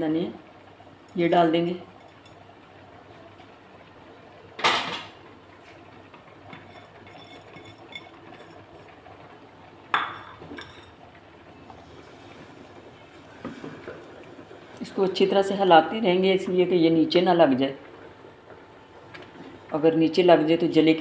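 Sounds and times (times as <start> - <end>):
kitchenware clattering against pot: 6.5 - 8.7, 9.9 - 11.0.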